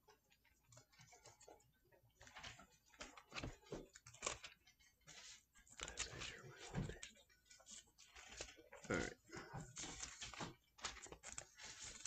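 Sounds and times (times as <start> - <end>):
thin pages rustling: 0.1 - 12.0.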